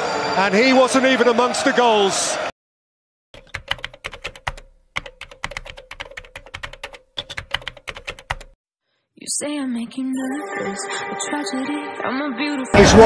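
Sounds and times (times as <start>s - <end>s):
typing on keyboard: 3.4s - 8.6s.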